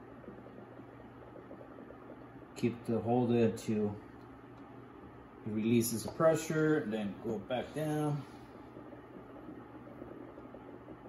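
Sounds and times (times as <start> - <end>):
low hum with hiss: 0.0 - 11.0.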